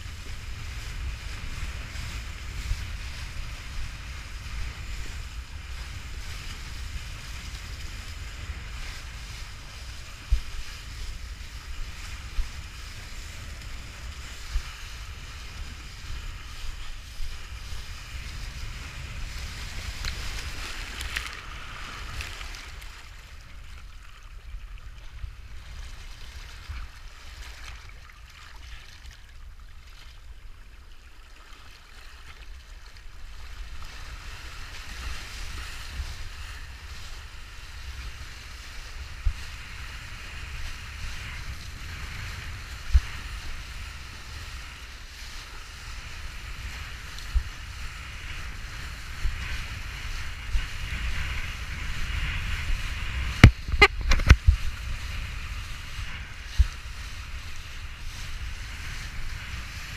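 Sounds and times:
water rushing and hissing: 0.0s - 24.3s
wind buffeting microphone: 0.0s - 27.6s, 33.3s - 59.9s.

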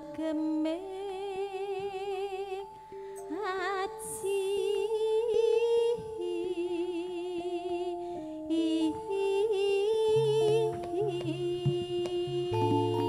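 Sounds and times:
woman singing with vibrato: 0.0s - 13.0s
deep bass notes: 10.2s - 13.0s
band holding notes: 10.8s - 13.0s.

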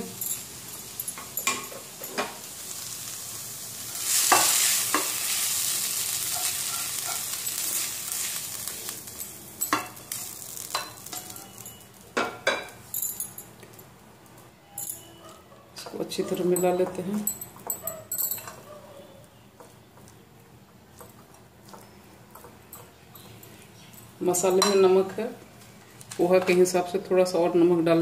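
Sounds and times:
sizzling hiss: 0.0s - 12.1s.

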